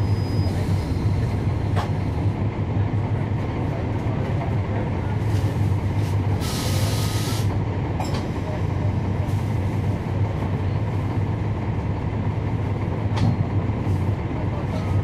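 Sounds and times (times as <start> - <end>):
diesel bus engine droning: 0.0 - 15.0
air release hiss: 6.4 - 7.5.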